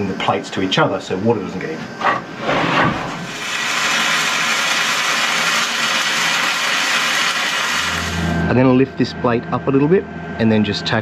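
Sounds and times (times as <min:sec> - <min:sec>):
welding arc crackling: 0:03.2 - 0:08.4.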